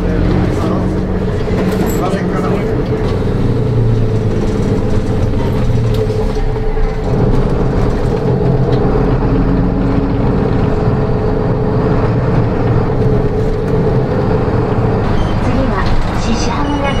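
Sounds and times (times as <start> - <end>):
bus diesel engine humming: 0.0 - 17.0
road and tyre noise: 0.0 - 17.0.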